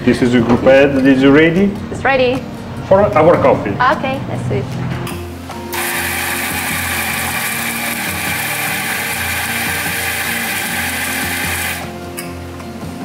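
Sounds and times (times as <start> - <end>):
coffee grinder grinding: 5.8 - 11.9.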